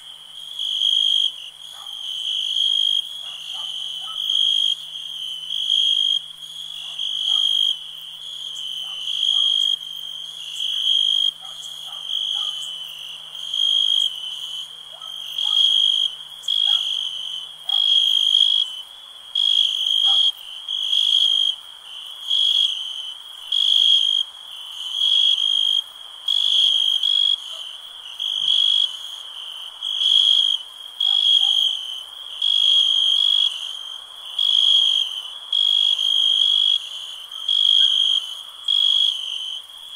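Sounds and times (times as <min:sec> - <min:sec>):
crickets chirping: 0:00.0 - 0:39.9
faint frog calls: 0:00.0 - 0:39.9.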